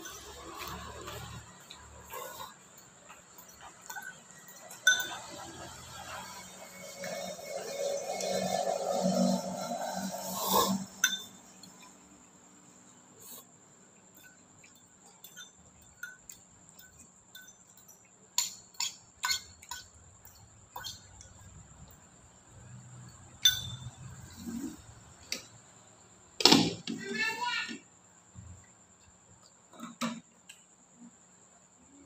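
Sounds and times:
metal spoon tapping a bowl: 3.8s - 5.4s, 14.6s - 21.6s, 23.4s - 24.0s.

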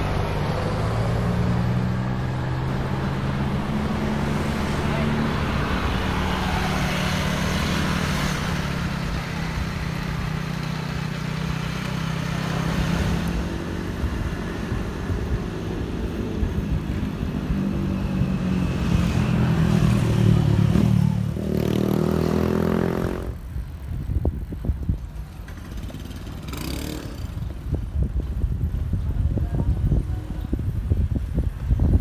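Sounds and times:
wind buffeting microphone: 13.0s - 20.8s, 23.2s - 32.0s.

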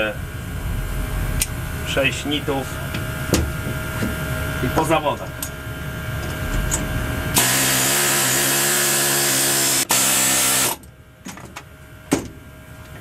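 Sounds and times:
pneumatic air hammer: 7.4s - 10.9s.

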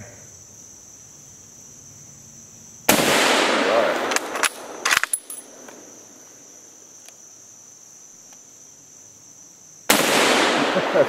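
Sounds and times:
high insect drone: 0.0s - 11.0s
rifle bolt metallic clacks: 4.0s - 5.8s.

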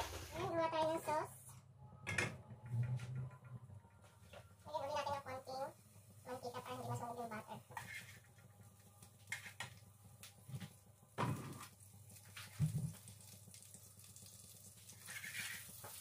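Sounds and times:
liquid pouring into a pan: 11.2s - 16.0s.

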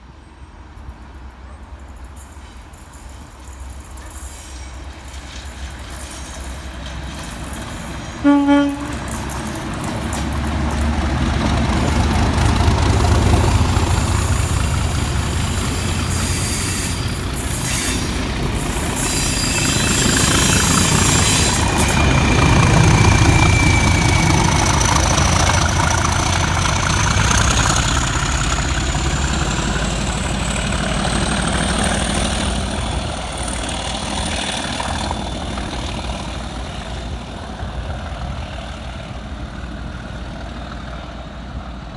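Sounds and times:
diesel locomotive engine rumble: 0.0s - 41.9s
train wheels on rails: 0.6s - 41.9s
high whistle rising in pitch: 19.0s - 24.9s.

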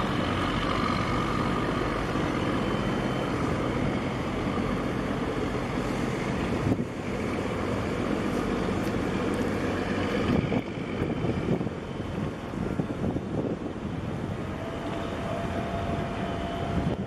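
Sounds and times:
marine engine droning: 0.0s - 17.0s
wind buffeting microphone: 0.0s - 17.0s.

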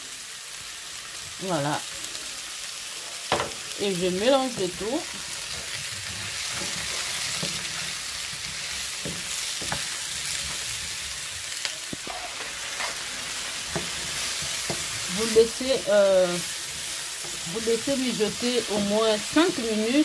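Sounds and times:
vegetables sizzling in a frying pan: 0.0s - 20.0s
wooden spatula scraping and knocking: 4.4s - 15.1s.

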